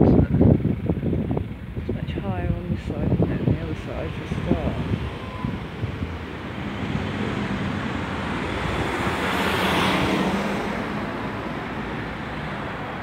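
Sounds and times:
car driving past: 3.7s - 13.0s.

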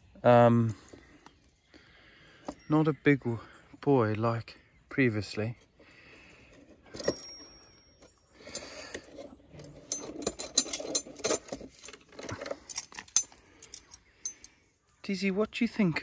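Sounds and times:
metal trap clicking and rattling: 6.8s - 14.5s.

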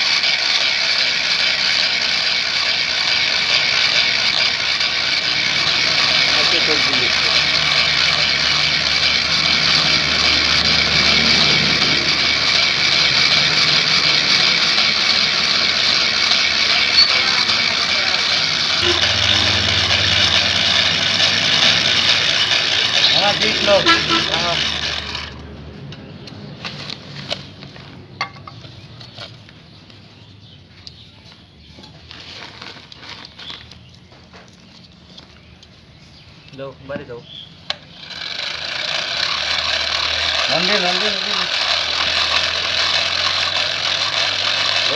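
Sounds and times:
blower whirring: 0.0s - 27.4s, 37.7s - 44.9s.

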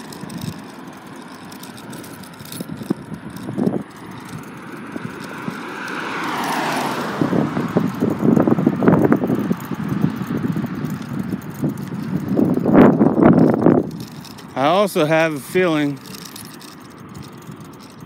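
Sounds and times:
steady road noise: 0.0s - 18.0s
wind buffeting microphone: 0.0s - 18.0s
car passing by: 5.2s - 9.8s.

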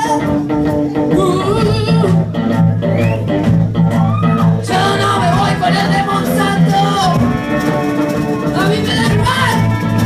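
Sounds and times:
woman singing: 0.0s - 2.3s, 4.6s - 7.4s, 8.5s - 10.0s
bass guitar: 0.0s - 10.0s
electric guitar: 0.0s - 10.0s.

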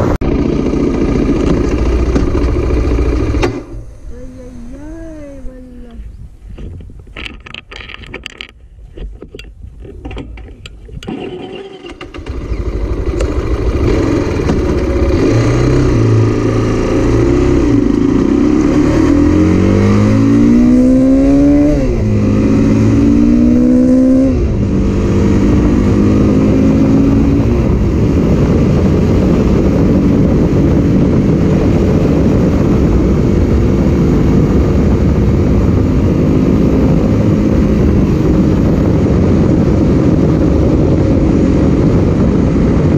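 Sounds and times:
motorcycle engine accelerating: 0.0s - 5.6s, 11.0s - 42.9s
wind noise on microphone: 1.4s - 42.9s.

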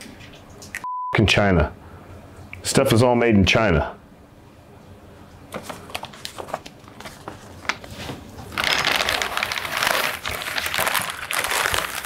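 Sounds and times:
packing wrap crinkling: 5.5s - 12.0s.

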